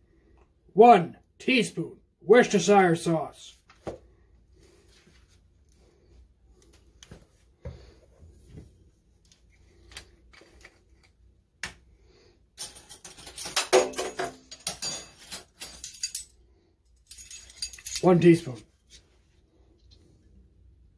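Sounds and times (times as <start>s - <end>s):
metal measuring spoons clinking: 12.6s - 16.4s, 17.0s - 19.0s.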